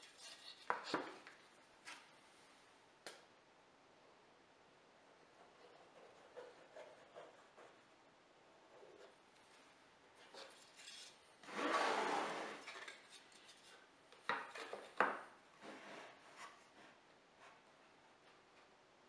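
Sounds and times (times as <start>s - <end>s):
plywood scraping across plywood: 10.8s - 12.9s.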